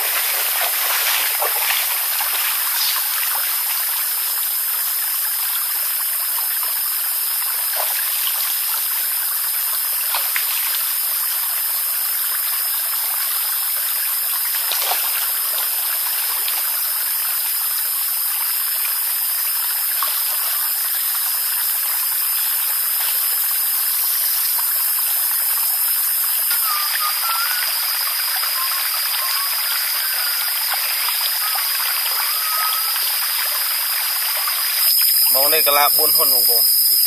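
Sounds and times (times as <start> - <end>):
water rushing and sloshing: 0.0 - 3.8.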